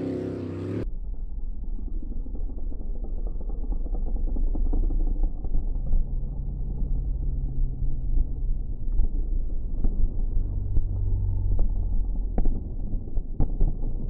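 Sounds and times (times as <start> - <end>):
rough low engine rumble: 0.0 - 14.0.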